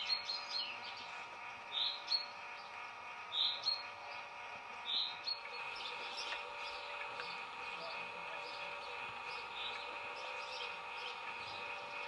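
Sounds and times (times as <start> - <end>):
chaffinch calling: 4.9 - 12.0.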